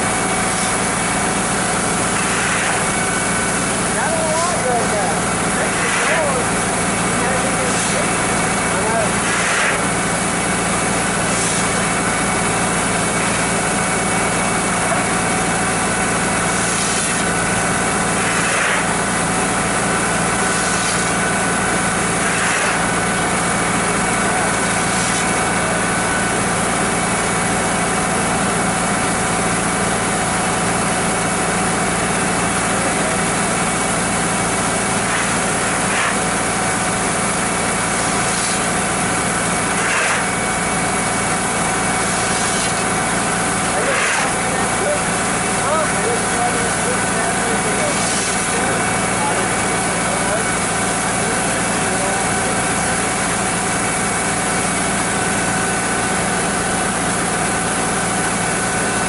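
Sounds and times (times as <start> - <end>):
corn pouring into hopper: 0.0 - 12.6, 32.7 - 53.2
shovel scraping corn: 5.7 - 6.4, 7.7 - 8.0, 9.2 - 9.8, 11.3 - 11.8, 16.6 - 17.2, 18.2 - 18.9, 20.5 - 21.1, 22.2 - 22.8, 24.9 - 25.4, 35.1 - 36.2, 38.0 - 38.7, 39.7 - 40.3, 42.0 - 42.8, 43.7 - 44.4, 47.9 - 48.5.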